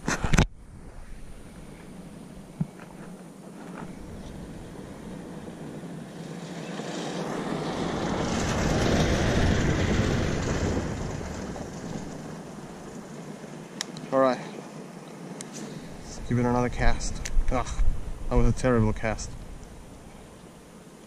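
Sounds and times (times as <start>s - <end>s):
vehicle passing by: 4.0s - 13.1s.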